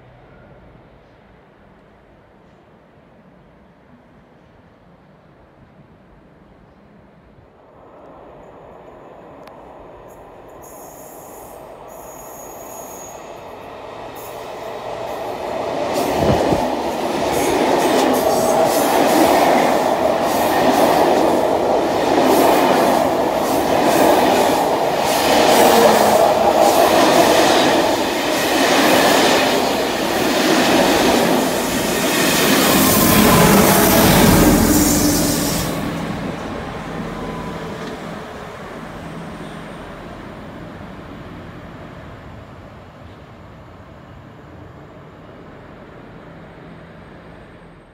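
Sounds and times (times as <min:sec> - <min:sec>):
train wheels rumbling on rails: 0:07.7 - 0:47.9
rhythmic clatter over rail joints: 0:08.8 - 0:43.6.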